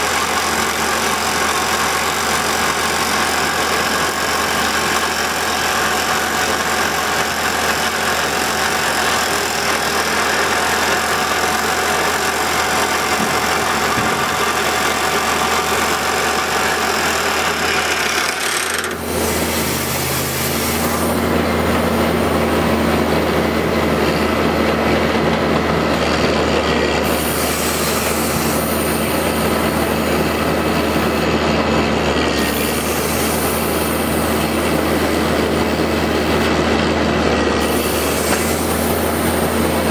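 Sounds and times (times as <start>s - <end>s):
rock drill hammering: 0.0s - 19.9s
drilling rig engine running: 0.0s - 39.9s.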